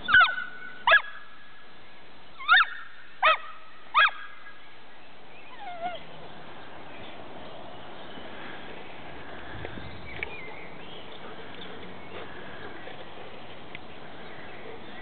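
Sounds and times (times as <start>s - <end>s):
dog yelping: 0.0s - 1.1s, 2.4s - 4.2s, 5.5s - 6.1s.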